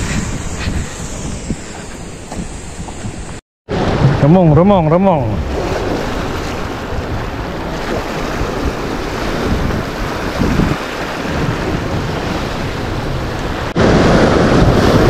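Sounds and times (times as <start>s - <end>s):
wind buffeting microphone: 0.0s - 4.6s, 5.2s - 15.0s
waves breaking on rocky shore: 3.7s - 15.0s.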